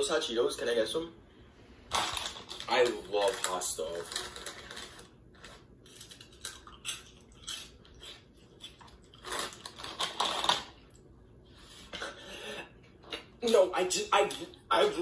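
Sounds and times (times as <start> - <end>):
chewing crunchy snacks: 1.9 - 11.1
snack bag crinkling: 1.9 - 11.1.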